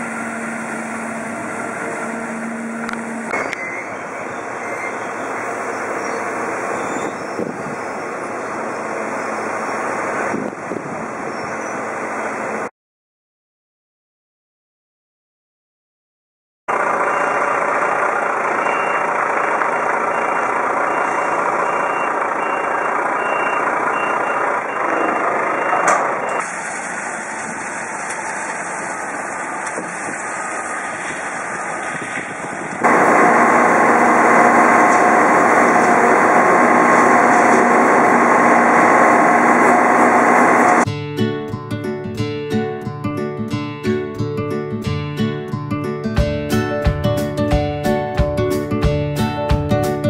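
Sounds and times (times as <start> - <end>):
engine and hydraulic hum: 0.0 - 12.7, 16.7 - 40.9
wheel loader engine: 0.0 - 12.7, 16.7 - 40.9
truck reversing beep: 2.0 - 9.9, 16.7 - 26.5, 32.8 - 40.8.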